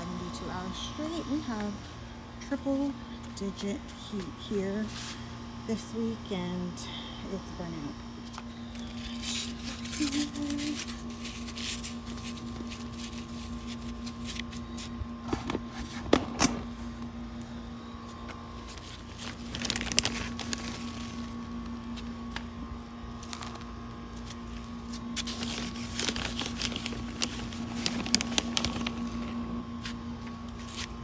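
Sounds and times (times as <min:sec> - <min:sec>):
air conditioner humming: 0:00.0 - 0:31.0
plastic bag crinkling: 0:08.8 - 0:14.6, 0:18.6 - 0:22.3, 0:23.1 - 0:29.6.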